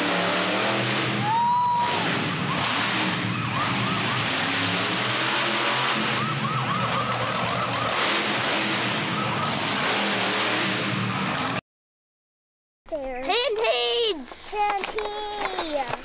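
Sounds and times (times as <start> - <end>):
truck engine running loud: 0.0 - 11.6
police siren yelping: 1.2 - 9.8.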